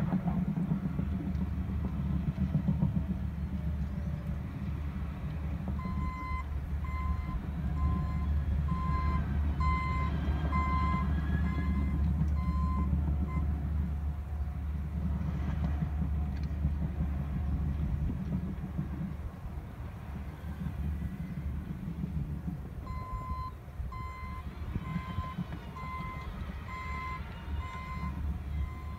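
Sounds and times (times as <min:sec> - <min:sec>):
diesel engines rumbling: 0:00.0 - 0:28.9
backup alarm beeping: 0:05.8 - 0:13.4, 0:22.9 - 0:28.9.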